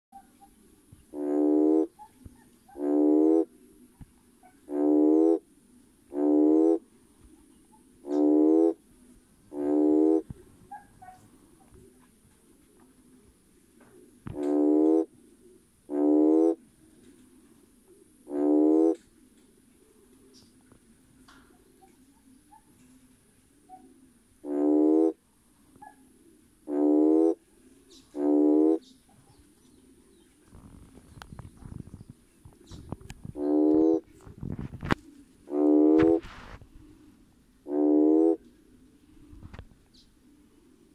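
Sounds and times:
toad calling: 0.2s - 3.5s, 4.4s - 5.5s, 7.6s - 8.8s, 9.5s - 11.8s, 14.2s - 15.1s, 23.7s - 25.2s, 25.8s - 29.1s, 30.7s - 36.6s, 37.6s - 38.4s.

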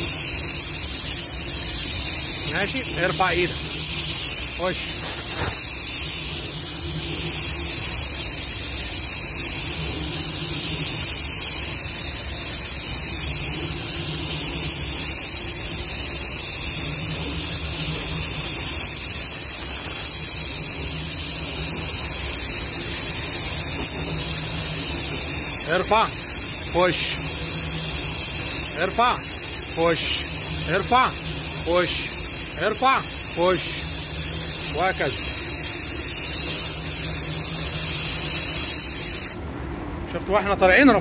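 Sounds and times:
spray gun air hiss: 0.0s - 39.9s.

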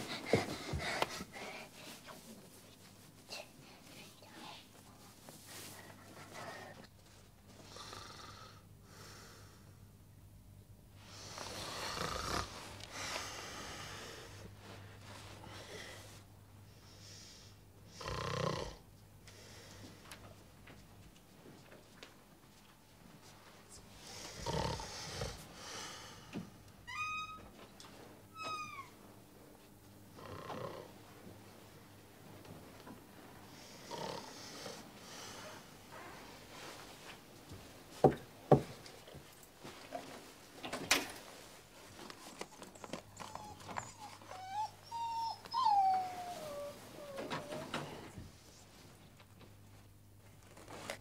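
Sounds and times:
man snoring: 7.7s - 8.6s, 11.4s - 12.5s, 24.4s - 25.4s
dog whimpering: 43.2s - 47.8s.

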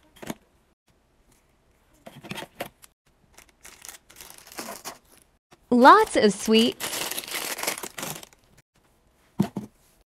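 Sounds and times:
plastic bag crinkling: 3.4s - 5.3s, 6.4s - 8.6s.

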